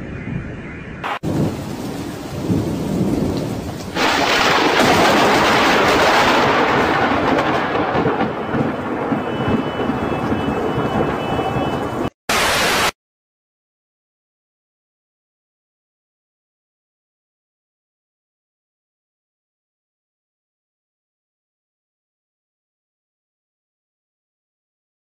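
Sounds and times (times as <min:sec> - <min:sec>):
thunder rumbling: 0:00.0 - 0:12.8
heavy rain hissing: 0:01.0 - 0:05.0, 0:09.2 - 0:13.0
static noise burst: 0:12.3 - 0:13.0.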